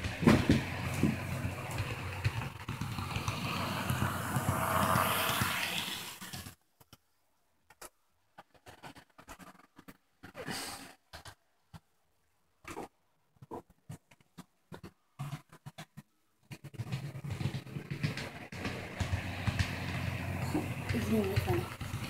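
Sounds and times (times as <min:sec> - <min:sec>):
model train running on track: 0:00.0 - 0:06.5, 0:17.2 - 0:22.0.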